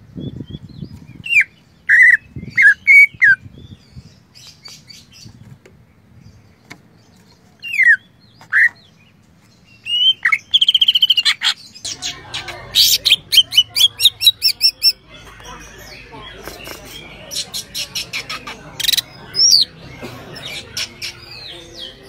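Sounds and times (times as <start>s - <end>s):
bird singing: 6.3s - 22.0s.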